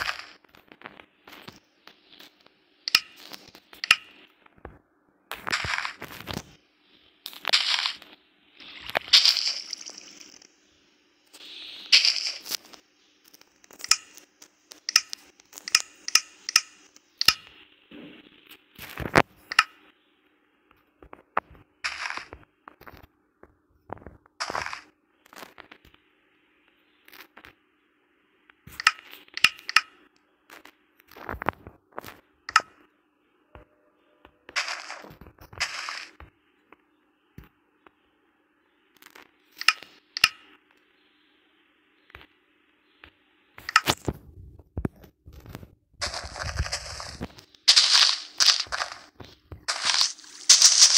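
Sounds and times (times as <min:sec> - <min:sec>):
wood scraping strokes: 0:49.7 - 0:50.9.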